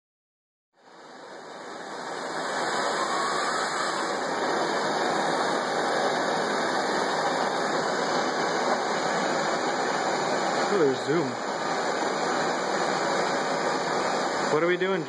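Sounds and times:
gas torch flame hissing: 0.8 - 15.0.

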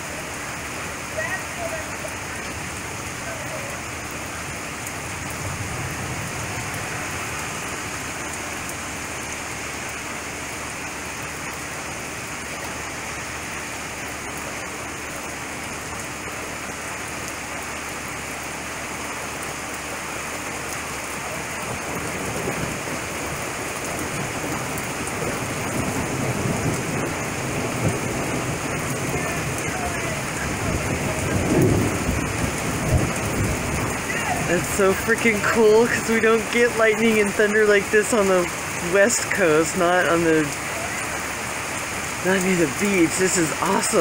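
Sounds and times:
steady rain: 0.0 - 44.0
low rumble of thunder: 2.4 - 8.7, 21.3 - 35.0.

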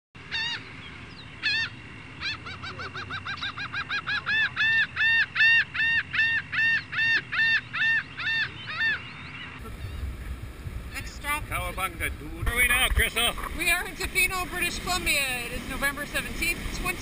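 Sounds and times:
large bird calling: 0.2 - 11.7.

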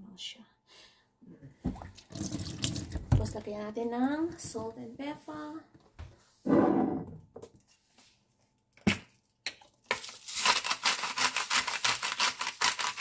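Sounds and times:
pepper grinder crunching peppercorns: 9.6 - 13.0.

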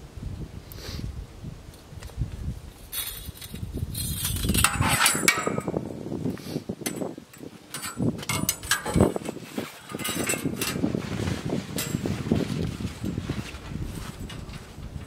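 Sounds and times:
steel blade rattling and clanking: 2.9 - 5.8, 6.8 - 10.9, 11.8 - 12.1.

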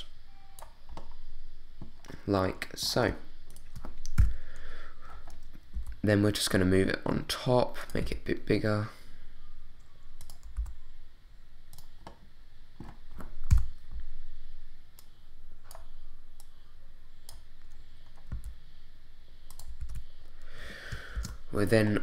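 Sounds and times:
keyboard and mouse clicks: 3.5 - 4.4, 10.2 - 10.8, 12.8 - 13.8, 15.0 - 16.6, 19.4 - 20.1, 20.9 - 21.4.

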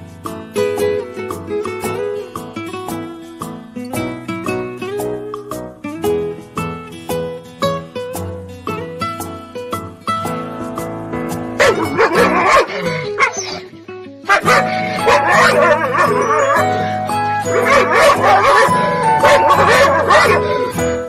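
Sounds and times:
background music: 0.0 - 21.0
dog yipping and whining: 11.6 - 13.7, 14.3 - 21.0.

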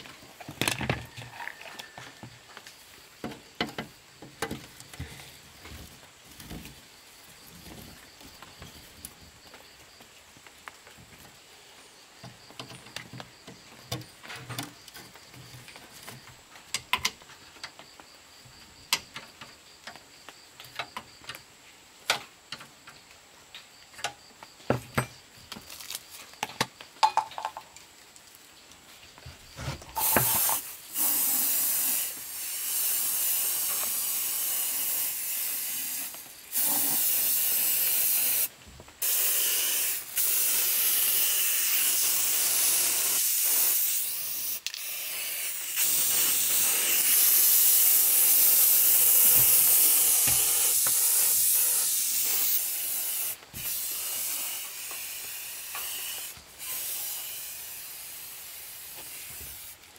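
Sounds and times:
spray paint hissing: 30.0 - 59.9.

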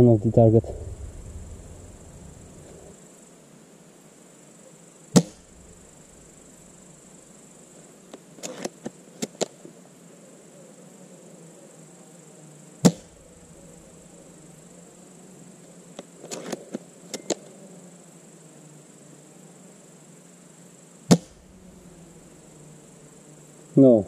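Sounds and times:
high insect chirr: 0.0 - 24.0
airsoft rifle shot crack: 5.1 - 6.3, 12.8 - 13.6, 21.1 - 21.6.

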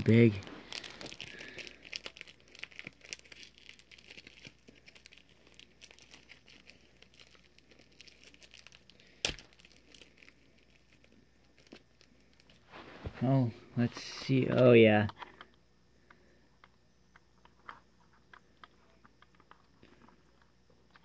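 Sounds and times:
plastic bag crinkling: 0.0 - 13.1.

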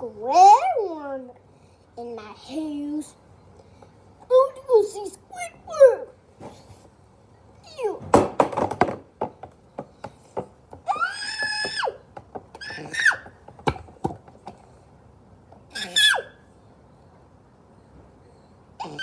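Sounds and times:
plastic toys knocking and clicking: 8.0 - 14.6
child squealing: 10.9 - 12.0, 12.6 - 13.4, 15.7 - 16.4, 18.8 - 19.0.

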